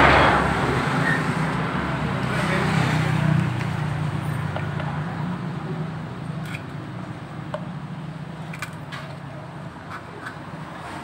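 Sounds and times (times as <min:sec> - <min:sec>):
motor vehicle passing: 0:00.0 - 0:05.5.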